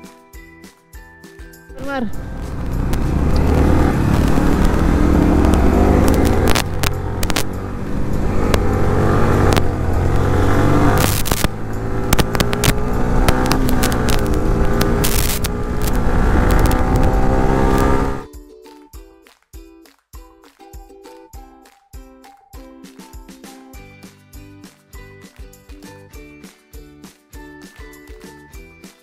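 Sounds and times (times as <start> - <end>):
motorcycle engine running: 1.9 - 18.3
sharp knocks and clicks: 2.4 - 18.0.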